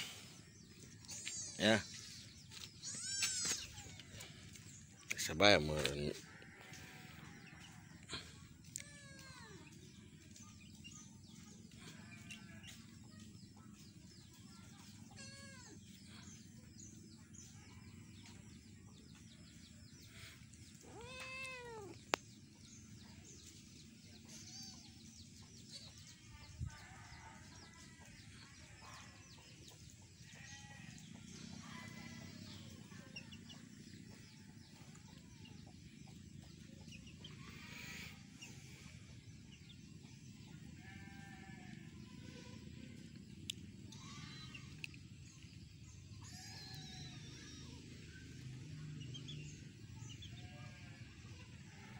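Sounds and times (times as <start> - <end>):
kittens meowing: 2.8 - 4.0, 20.8 - 22.0.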